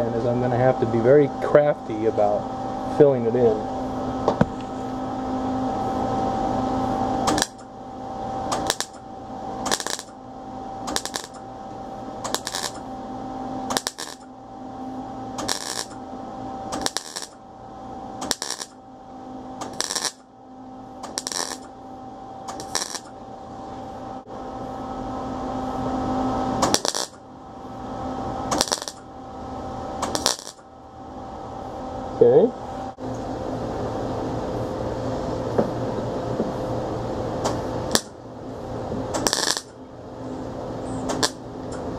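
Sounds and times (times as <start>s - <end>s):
steady hum: 0.0s - 41.9s
welder bursts: 7.2s - 7.7s, 8.5s - 9.0s, 9.6s - 10.2s, 10.8s - 12.9s, 13.6s - 14.3s, 15.3s - 16.0s, 16.7s - 17.4s, 18.2s - 18.8s, 19.6s - 20.3s, 21.0s - 21.7s, 22.5s - 23.2s, 26.6s - 27.2s, 28.5s - 29.0s, 30.0s - 30.6s, 37.9s - 38.2s, 39.1s - 39.8s, 41.1s - 41.5s.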